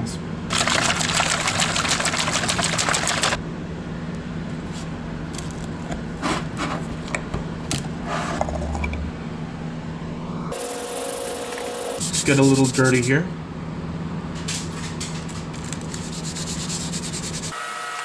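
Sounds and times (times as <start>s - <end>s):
metal can rattling when shaken: 0.5s - 3.4s.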